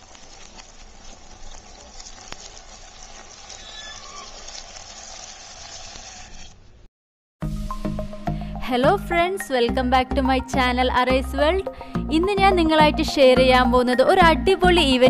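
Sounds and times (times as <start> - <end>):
hot oil sizzling in a pan: 0.0 - 6.5.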